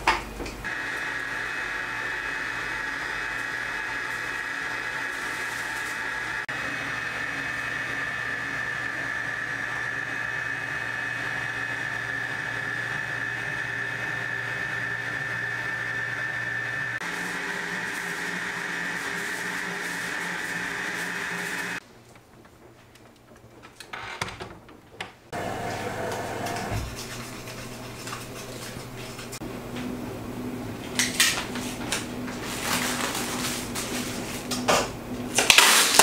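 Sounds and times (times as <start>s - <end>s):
stand mixer whining: 0.7s - 21.8s, 25.3s - 27.0s.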